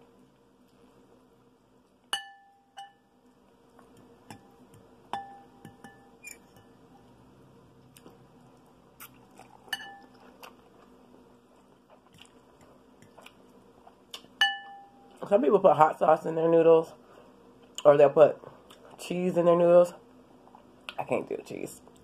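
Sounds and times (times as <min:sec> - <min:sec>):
fork clinking on glass bowl: 0:02.2 - 0:03.1, 0:05.1 - 0:06.8, 0:09.7 - 0:10.1, 0:14.4 - 0:14.9.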